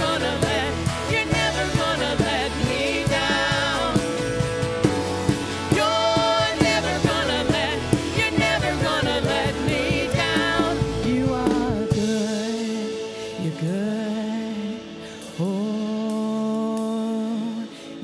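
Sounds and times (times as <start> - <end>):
drum kit: 0.0 - 17.6
guitars: 0.0 - 18.0
person singing: 5.7 - 18.0.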